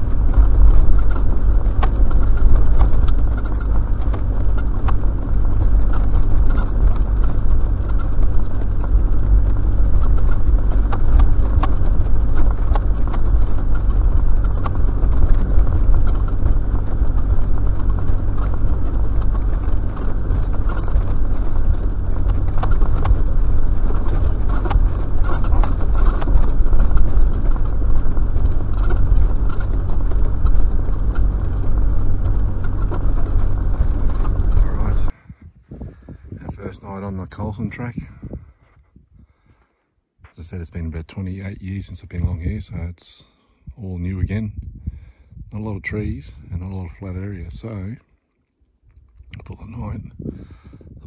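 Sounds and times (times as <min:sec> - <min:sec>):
vehicle knocks and rattles: 0:00.0 - 0:35.1
engine and tyres droning: 0:00.0 - 0:38.4, 0:39.4 - 0:51.0.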